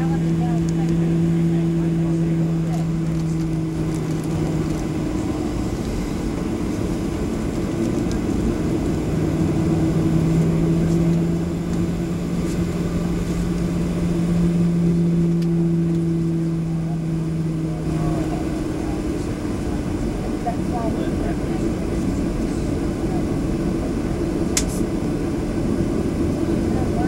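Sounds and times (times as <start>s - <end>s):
aircraft cabin engine rumble: 0.0s - 27.0s
low steady hum: 0.0s - 27.0s.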